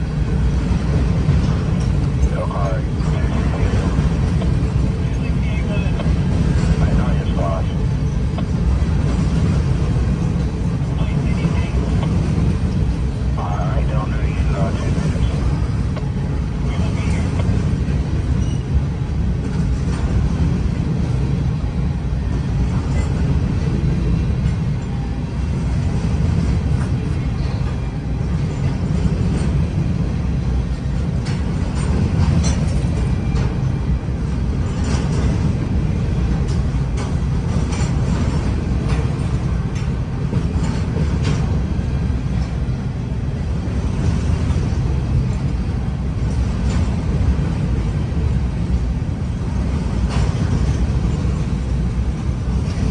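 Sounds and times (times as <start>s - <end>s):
train wheels rumbling on rail: 0.0s - 52.9s.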